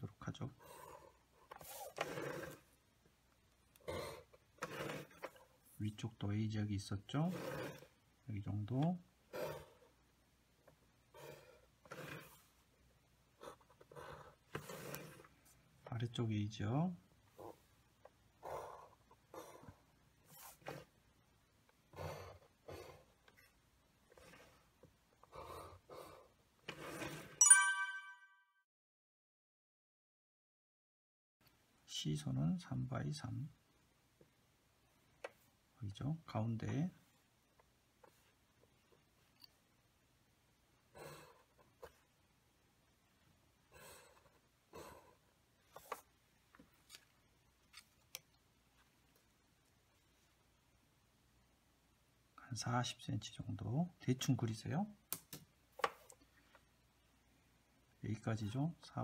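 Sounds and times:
pencil scratching on paper: 0.6 - 2.7, 4.1 - 5.6, 7.2 - 8.0, 11.1 - 12.6, 13.4 - 15.6, 18.4 - 20.9, 21.9 - 27.4, 40.9 - 42.1, 43.7 - 46.1
bright chime: 27.4 - 28.5.

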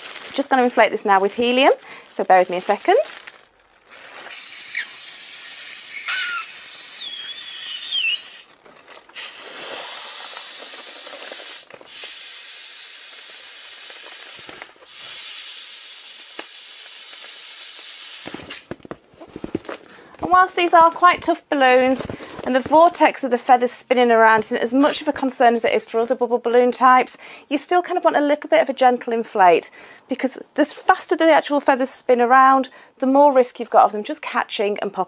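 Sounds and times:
balloon squeaks: 2.6 - 23.0
helium hissing from nozzle: 4.3 - 8.5, 9.1 - 18.7.

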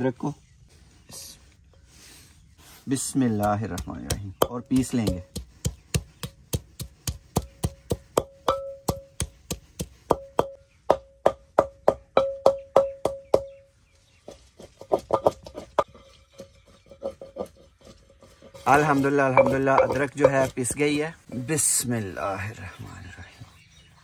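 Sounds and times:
pestle pounding in clay mortar: 3.3 - 13.6, 14.3 - 21.4.

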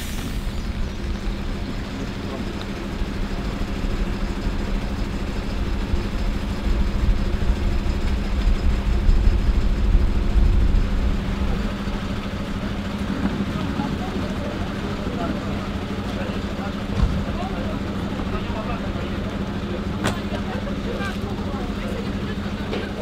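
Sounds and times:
bus engine idling: 0.0 - 23.0.

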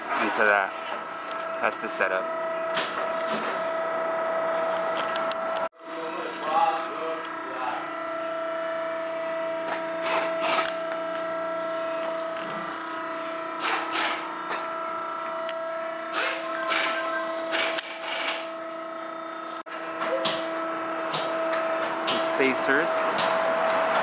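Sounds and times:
steady machine hum: 0.0 - 24.0
rasping power tool: 13.6 - 14.6, 16.1 - 18.5.

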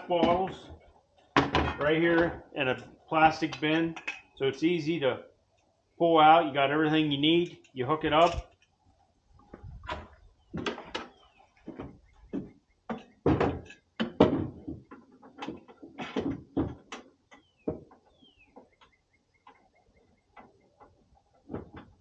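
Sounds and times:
camp gear knocking and clattering: 0.0 - 4.4, 9.5 - 22.0.

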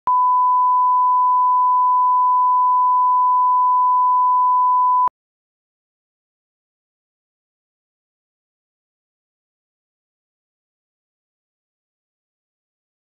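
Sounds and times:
sine wave test tone: 0.1 - 5.1.

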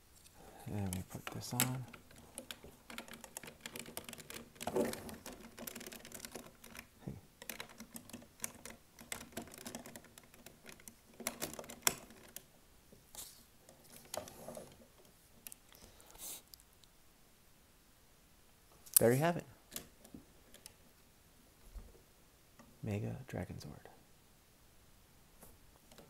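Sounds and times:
toy parts clicking and rattling: 0.2 - 12.5.

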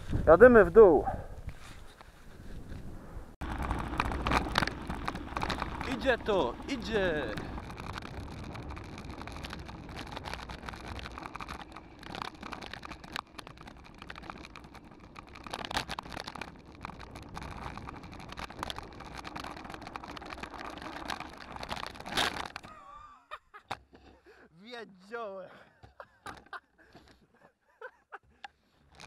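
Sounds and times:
wind over camera: 0.0 - 22.7
bike rattling: 1.5 - 22.9
tyres rushing on snow: 3.4 - 22.6.

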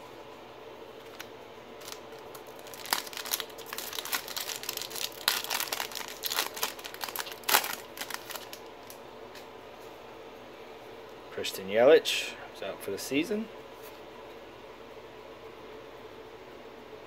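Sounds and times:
wrapper tearing and crinkling: 1.0 - 9.0.

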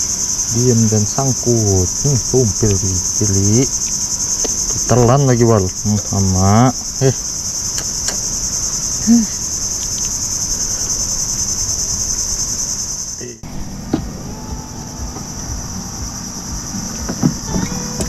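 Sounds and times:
high-pitched insect drone: 0.0 - 18.0
low rumble: 13.3 - 18.0.

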